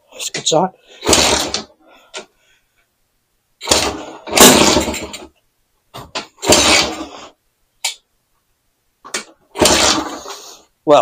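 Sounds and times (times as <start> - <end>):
motorcycle engine start attempts: 1.0 - 1.7, 3.6 - 5.3, 6.2 - 7.3, 9.2 - 10.4.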